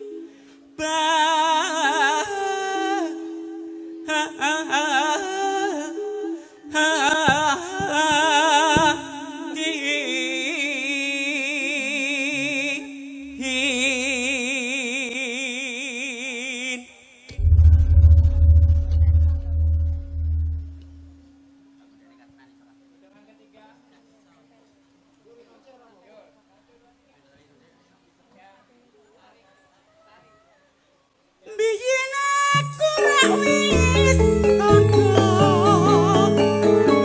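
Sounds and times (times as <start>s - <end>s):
sustained accompanying tones: 0.0s - 15.3s, 17.3s - 25.1s, 32.4s - 37.0s
person singing with vibrato: 0.0s - 18.0s, 31.4s - 37.0s.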